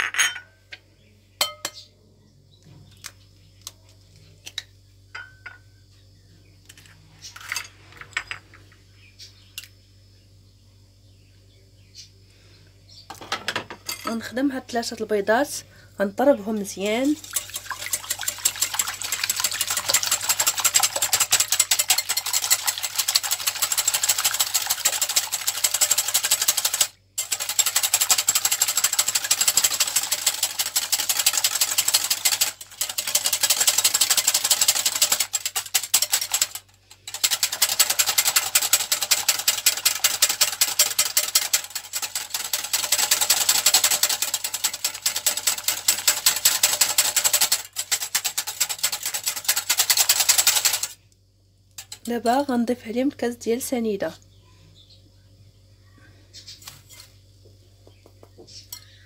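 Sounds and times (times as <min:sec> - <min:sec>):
whisk clicking against glass bowl: 0:16.9 - 0:51.0.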